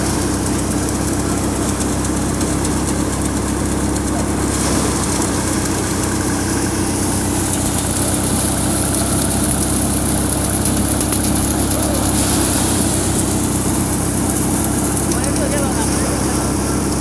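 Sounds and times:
thresher mechanical drone: 0:00.0 - 0:17.0.

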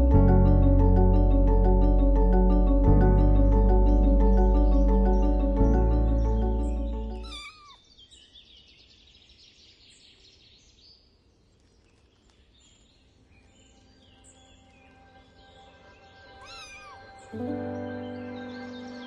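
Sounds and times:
background music: 0:00.0 - 0:07.4, 0:13.9 - 0:19.0.

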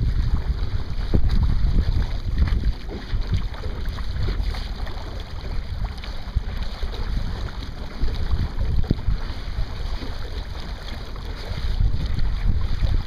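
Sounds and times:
water splashing along hull: 0:00.0 - 0:13.0
wind buffeting microphone: 0:00.0 - 0:13.0.

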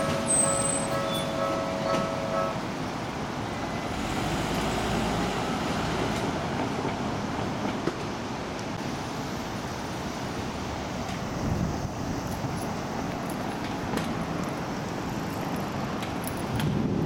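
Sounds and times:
level-crossing warning bell: 0:00.0 - 0:02.8
road traffic noise: 0:00.0 - 0:17.0.

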